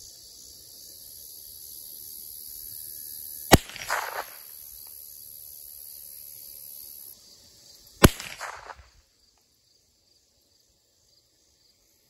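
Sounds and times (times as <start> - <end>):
pistol shot with echo: 3.5 - 4.5, 8.0 - 8.9.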